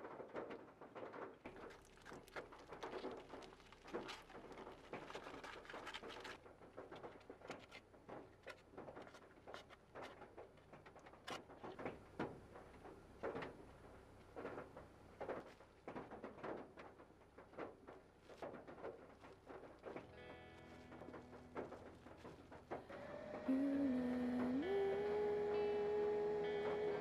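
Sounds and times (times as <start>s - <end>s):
chopsticks tapping and scraping plastic: 0.4s - 13.5s.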